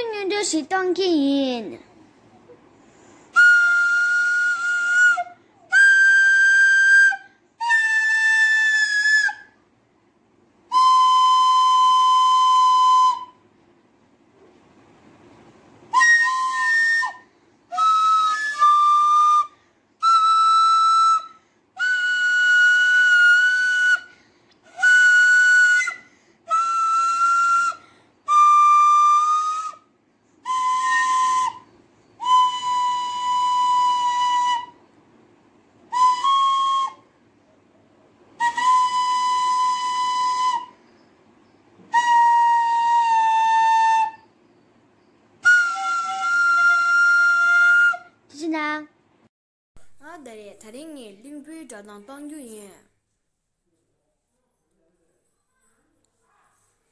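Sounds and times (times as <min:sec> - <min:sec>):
wooden flute held notes: 0:03.3 - 0:09.6, 0:10.7 - 0:13.5, 0:15.9 - 0:34.9, 0:35.9 - 0:37.1, 0:38.4 - 0:44.8, 0:45.4 - 0:48.2.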